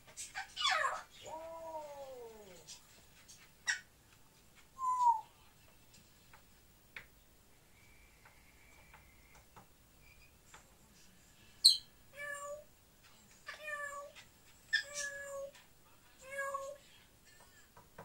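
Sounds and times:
parrot squeak: 0:00.2 - 0:01.2, 0:03.6 - 0:03.9, 0:11.6 - 0:11.9, 0:14.7 - 0:15.4
parrot meow-like calls: 0:00.4 - 0:02.7.

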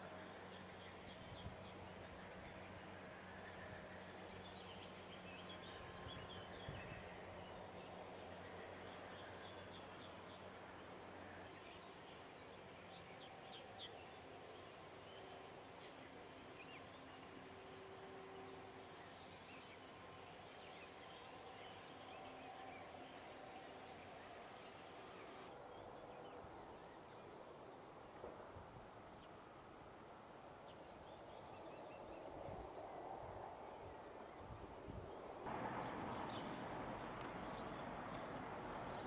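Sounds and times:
distant birds chirping: 0:35.5 - 0:39.0.

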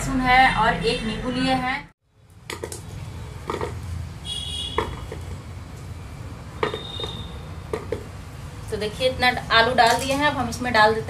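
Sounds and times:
potatoes knocking into metal pot: 0:06.6 - 0:08.1.

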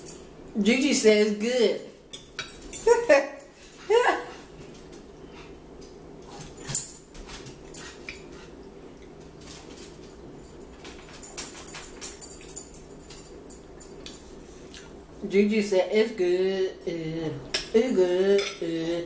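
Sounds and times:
faint steady hum: 0:00.0 - 0:19.0
forks clinking on plates: 0:01.8 - 0:03.5, 0:09.4 - 0:14.4.

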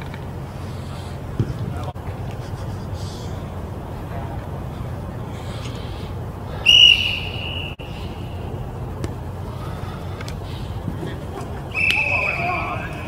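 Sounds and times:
referee's whistle blast: 0:06.6 - 0:07.8, 0:11.7 - 0:13.0.

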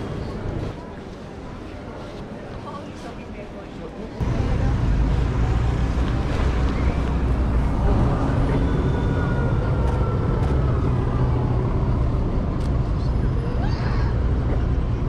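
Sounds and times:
traffic on wet road: 0:04.2 - 0:15.0
vehicle whine: 0:04.2 - 0:15.0.

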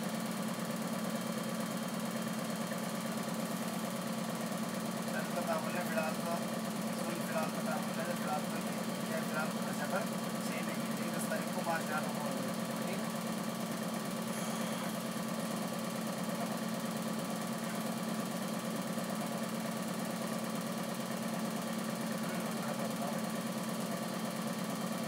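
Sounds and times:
low mechanical hum with flutter: 0:00.0 - 0:25.0.

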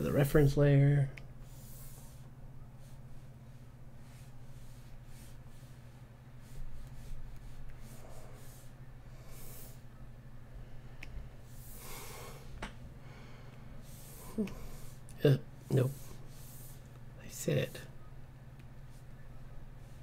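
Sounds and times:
low electrical hum: 0:00.0 - 0:20.0
person breathing through nose: 0:11.5 - 0:15.0.

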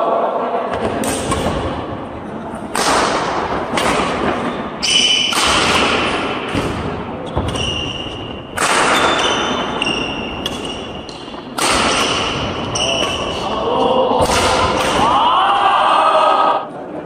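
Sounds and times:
rackets hitting shuttlecock: 0:00.7 - 0:01.8, 0:02.7 - 0:15.2
shoes squeaking on wooden court: 0:04.4 - 0:05.3, 0:07.2 - 0:11.5, 0:12.6 - 0:13.4.

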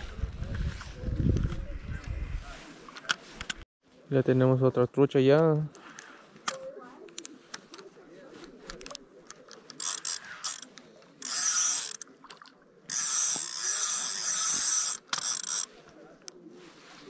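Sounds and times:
reel clicks: 0:08.7 - 0:16.4
fishing reel winding: 0:09.7 - 0:12.1, 0:12.9 - 0:15.7.

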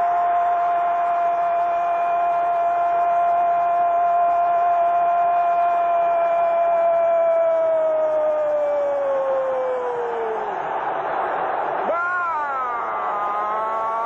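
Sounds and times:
commentator's long shouted cry: 0:11.8 - 0:14.0.

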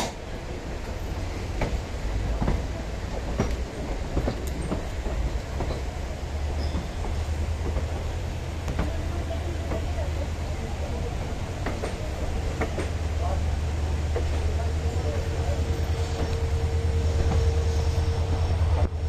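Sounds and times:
train coach low rumble: 0:00.0 - 0:19.0
wheels clacking over rail joints: 0:00.9 - 0:13.4.

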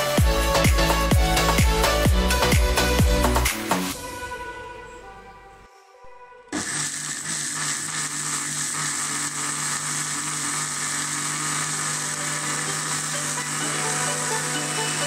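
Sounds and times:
mixer grinder running: 0:06.5 - 0:15.0.

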